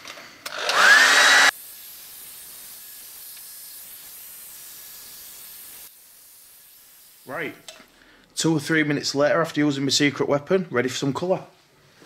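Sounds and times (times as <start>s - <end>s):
hairdryer blowing: 0.5s - 7.6s.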